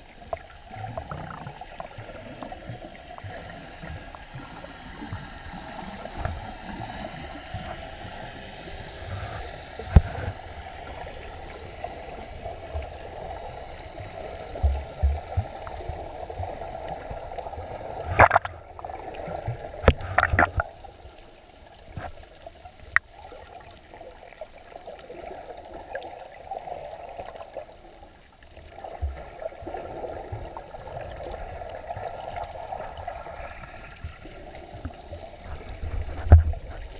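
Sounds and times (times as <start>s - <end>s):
underwater hiss and sloshing: 0.0s - 36.9s
sharp knocks underwater: 9.8s - 10.4s, 18.1s - 18.6s, 19.8s - 20.7s, 36.1s - 36.8s.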